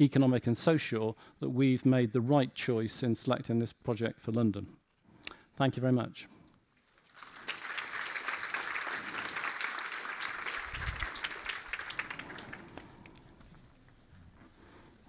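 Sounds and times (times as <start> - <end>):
audience applauding: 6.9 - 13.4.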